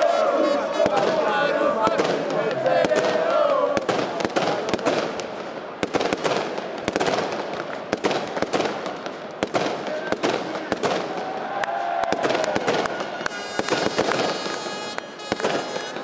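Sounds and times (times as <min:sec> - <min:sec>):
people shouting: 0:00.0 - 0:03.8, 0:10.8 - 0:14.2
crowd noise: 0:00.0 - 0:16.0
firecrackers cracking: 0:00.8 - 0:16.0.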